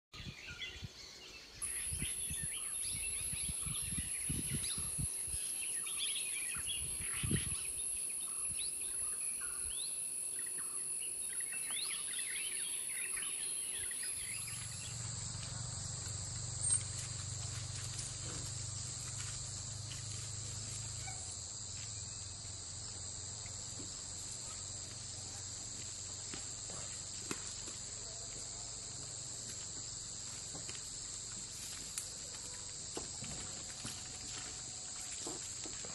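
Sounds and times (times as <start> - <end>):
bird chirps: 0.2 - 15.1
high-pitched insect drone: 1.6 - 35.9
low insect tones: 1.6 - 35.9.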